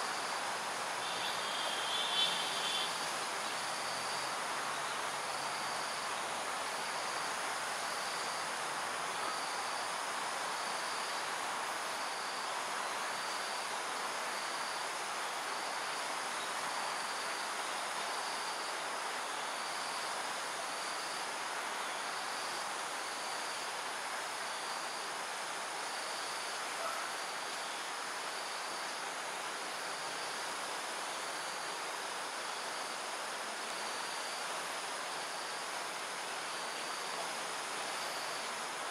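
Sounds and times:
short insect call: 0.0s - 38.9s
high-pitched insect buzz: 1.0s - 4.3s.

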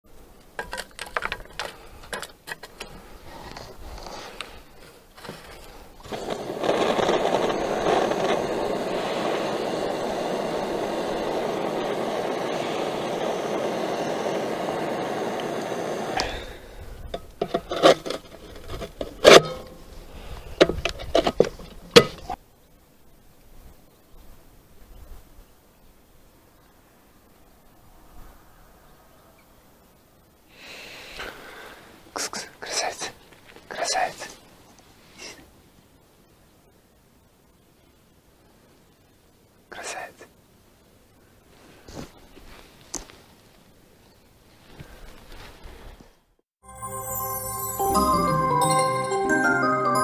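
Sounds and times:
wood chips rustling and scraping: 0.6s - 9.0s, 17.2s - 22.4s, 41.5s - 43.7s
blowtorch flame hissing: 5.2s - 18.4s.

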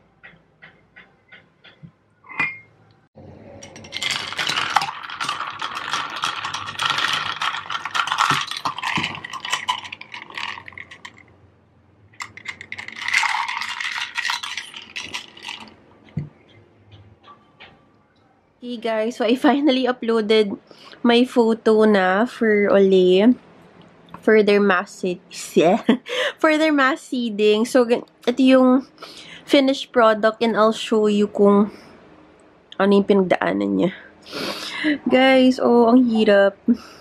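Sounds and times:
metal straw clinking in glass jar: 3.6s - 11.3s, 12.2s - 15.8s.

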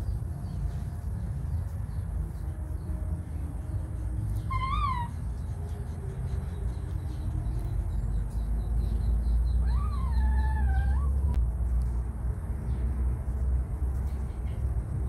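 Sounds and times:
steady low rumble: 0.0s - 15.0s
young animal whining: 4.3s - 11.4s.

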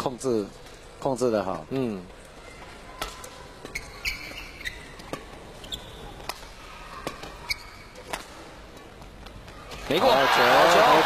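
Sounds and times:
shoes squeaking on court floor: 2.5s - 9.9s.

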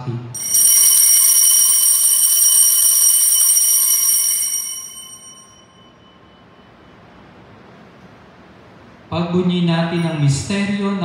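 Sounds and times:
altar bells ringing: 0.4s - 6.7s, 10.0s - 10.5s.

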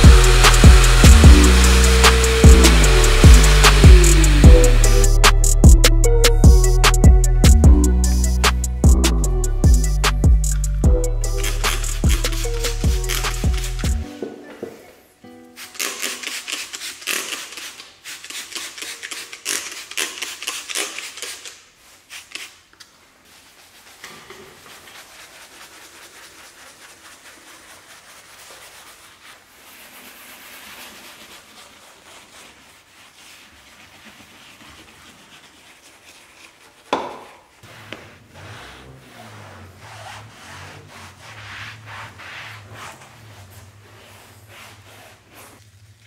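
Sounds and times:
brush scrubbing panel: 0.0s - 5.7s, 9.9s - 14.2s, 15.6s - 46.0s
spray bottle spraying: 0.0s - 5.7s, 9.8s - 14.2s, 15.5s - 22.6s.

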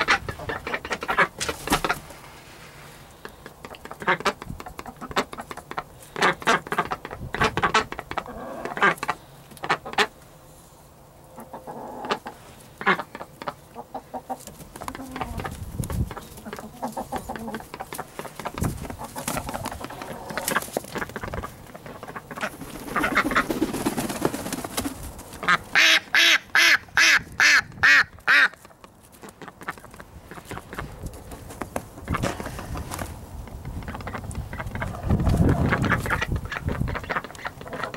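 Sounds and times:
duck quacking: 0.0s - 2.0s, 3.2s - 10.2s, 11.4s - 15.5s, 16.2s - 23.6s, 25.4s - 28.6s, 33.8s - 37.9s
chickens calling: 0.0s - 37.9s
rustling in straw: 1.3s - 3.2s, 12.2s - 12.9s.

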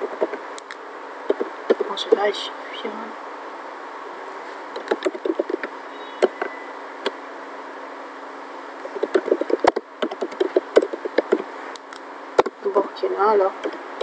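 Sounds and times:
steady background hiss: 0.0s - 14.0s
keyboard keys clicking: 4.8s - 5.7s, 8.8s - 11.5s.

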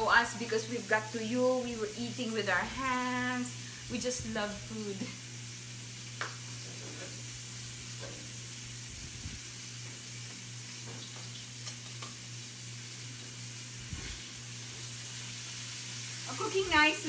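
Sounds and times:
fish sizzling in a pan: 0.0s - 17.0s.

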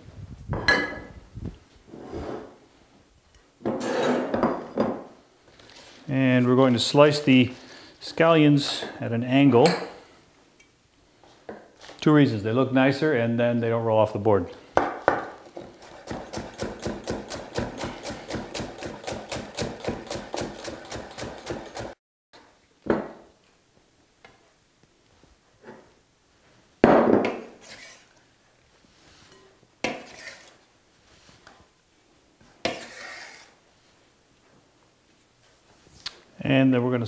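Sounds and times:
knife chopping on wooden board: 16.0s - 21.9s.

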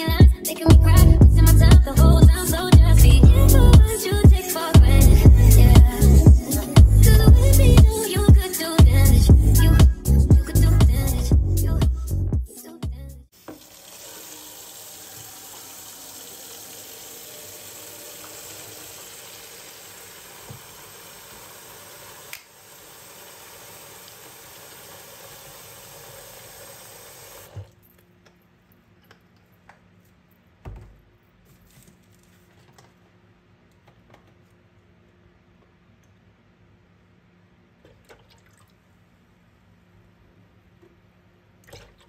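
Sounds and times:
tap water pouring into plastic bucket: 13.4s - 27.8s.

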